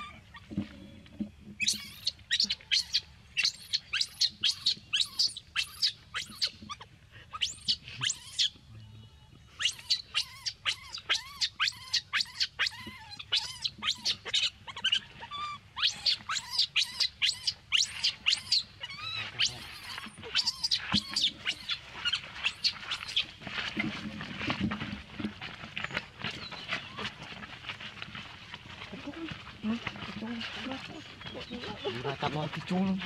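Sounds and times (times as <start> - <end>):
baby monkey screaming: 1.6 - 8.6, 9.6 - 23.3.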